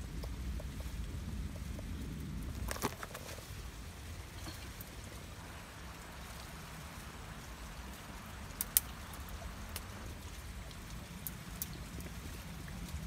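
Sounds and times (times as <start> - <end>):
light rustling of twigs: 0.1 - 13.0
clicks of rocks and twigs: 2.5 - 3.6.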